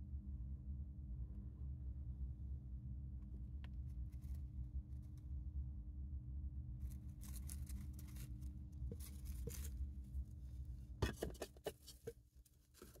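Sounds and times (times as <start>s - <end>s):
hamster rustling in bedding: 6.8s - 13.0s.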